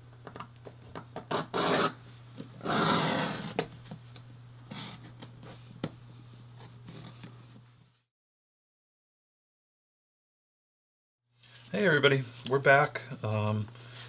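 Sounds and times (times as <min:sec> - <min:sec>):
edge beveler scraping leather: 0:01.3 - 0:02.0, 0:02.6 - 0:03.6.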